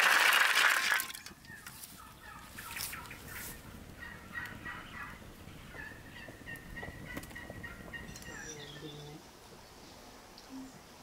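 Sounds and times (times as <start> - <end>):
fowl calling: 1.4 - 9.1.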